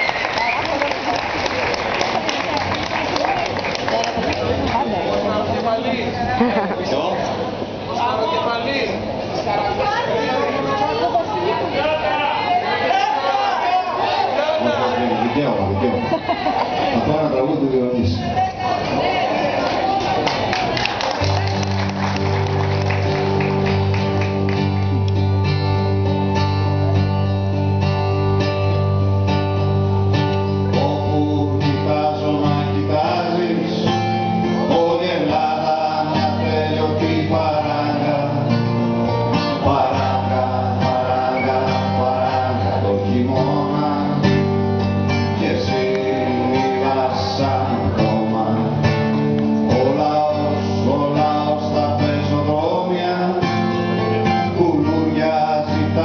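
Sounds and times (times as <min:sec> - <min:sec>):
man singing: 0:30.5 - 0:56.0.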